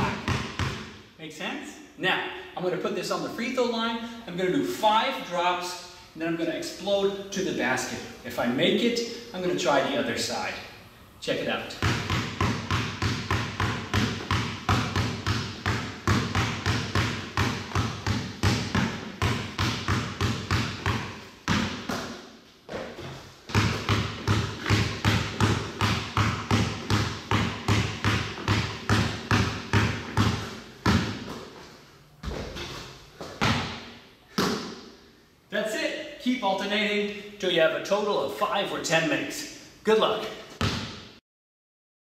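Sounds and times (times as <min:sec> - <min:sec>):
basketball dribbling in gym: 0:00.0 - 0:01.1, 0:11.7 - 0:35.1, 0:40.5 - 0:41.2.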